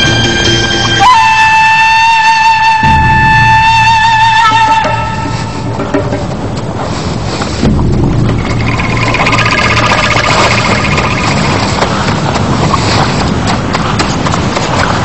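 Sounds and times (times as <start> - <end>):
dense rumbling noise: 5.0 - 15.0
running animal footfalls: 5.8 - 15.0.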